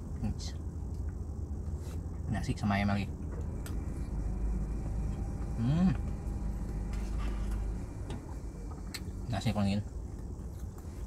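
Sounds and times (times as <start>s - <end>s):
low rumble in car cabin: 0.0s - 11.0s
man chewing food: 9.9s - 11.0s.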